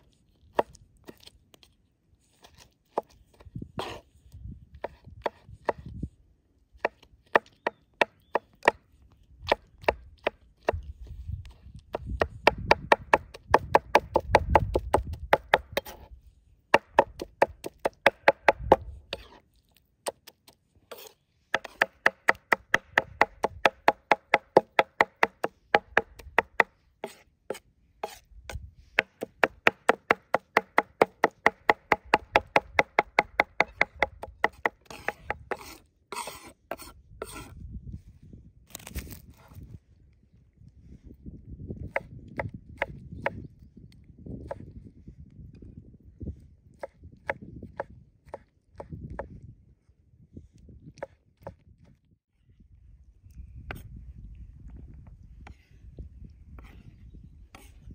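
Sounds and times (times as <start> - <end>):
knife chopping on wooden board: 11.9 - 16.1, 16.7 - 19.4, 21.0 - 27.2, 29.0 - 37.4.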